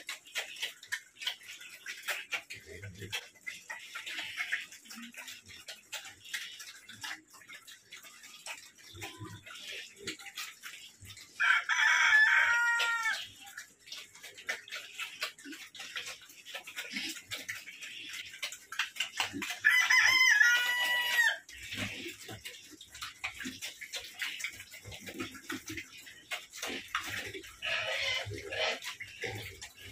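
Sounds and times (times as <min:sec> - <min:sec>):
pigs eating at a trough: 0:00.0 - 0:29.9
rooster crowing: 0:11.4 - 0:13.2, 0:19.6 - 0:21.4.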